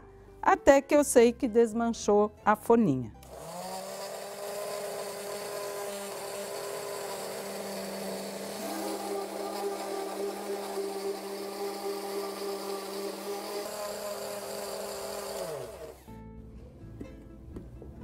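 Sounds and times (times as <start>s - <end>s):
electric blender running: 3.2s - 16.2s.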